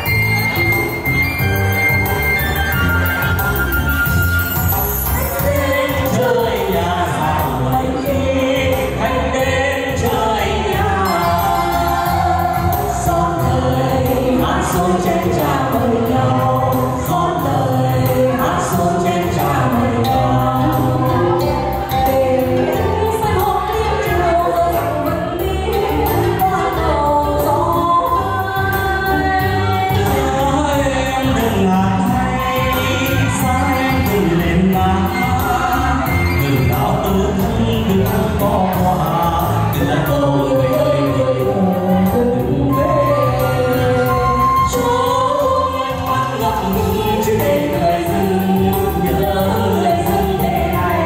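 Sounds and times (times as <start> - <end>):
instrumental backing music: 0.0 - 51.0
voices singing: 0.0 - 51.0.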